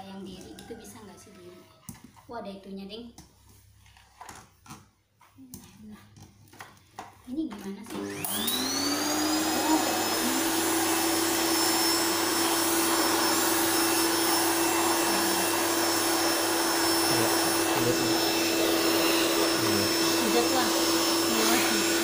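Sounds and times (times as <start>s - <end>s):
vacuum cleaner running: 7.9s - 22.0s.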